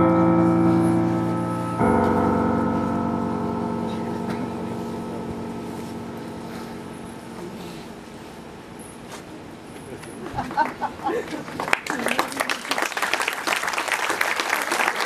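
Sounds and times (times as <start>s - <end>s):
electronic bell-like chords: 0.0s - 9.1s.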